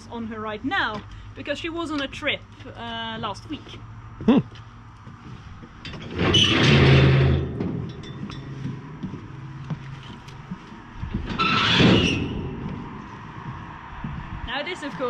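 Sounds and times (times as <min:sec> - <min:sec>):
footsteps on wooden planks: 0:03.2 - 0:06.1, 0:07.6 - 0:11.4, 0:12.1 - 0:15.0.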